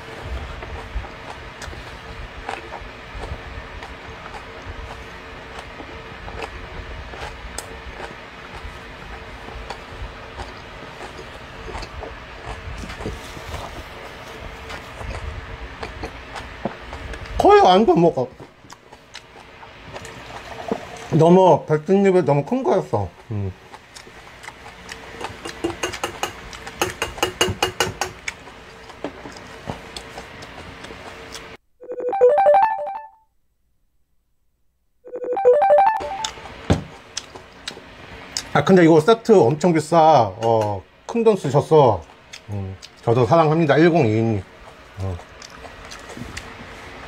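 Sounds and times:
man chewing food: 0.0s - 17.4s, 18.3s - 21.2s, 22.4s - 31.6s, 36.1s - 38.5s, 42.0s - 43.1s, 43.7s - 47.0s
faint hum: 0.0s - 47.0s
phone ringtone: 31.8s - 33.2s, 35.1s - 36.4s.

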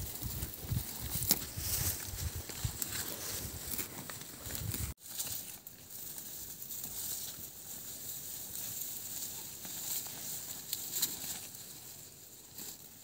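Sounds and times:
plants snapping and rustling: 0.1s - 5.5s.

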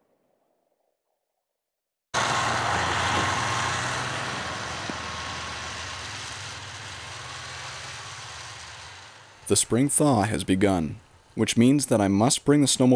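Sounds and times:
snowmobile engine running: 2.2s - 11.0s.

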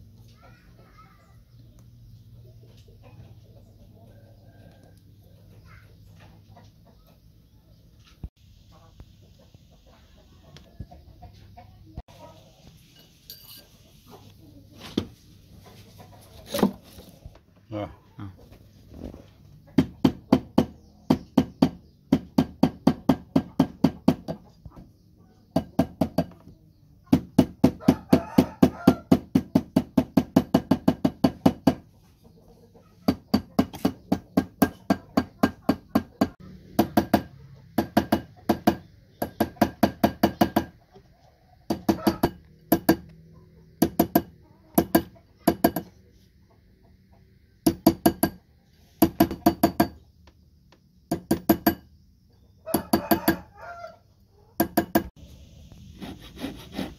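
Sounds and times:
small hammer tapping metal: 41.7s - 43.1s, 43.8s - 45.9s, 47.7s - 48.4s, 49.0s - 50.0s, 51.1s - 51.9s, 54.6s - 55.1s.

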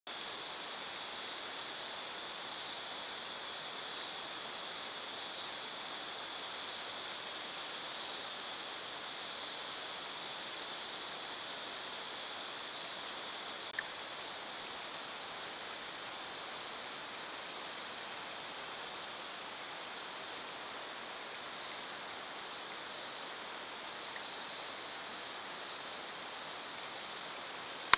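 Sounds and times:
steady outdoor hiss: 0.1s - 27.9s.

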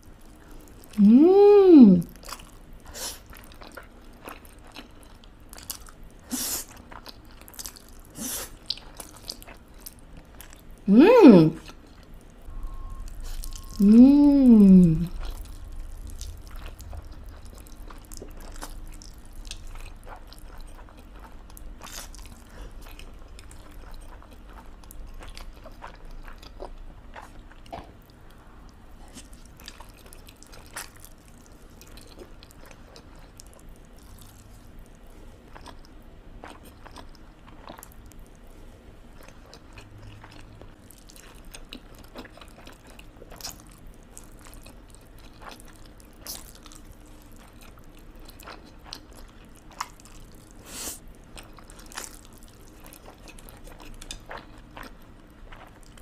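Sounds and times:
person chewing and slurping: 12.7s - 28.0s.

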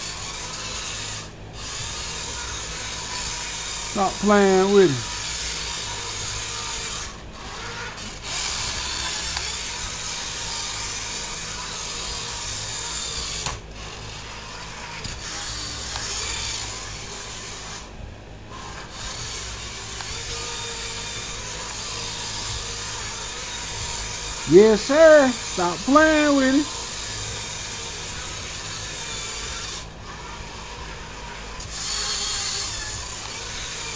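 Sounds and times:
rc car electric motor whining: 0.0s - 33.9s.

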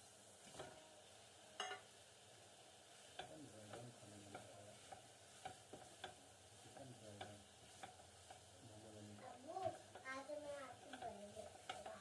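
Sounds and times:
spatula scraping a frying pan: 2.7s - 12.0s.

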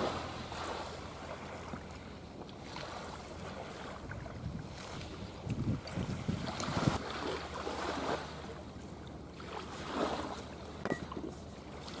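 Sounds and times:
wind buffeting microphone: 3.7s - 7.1s.

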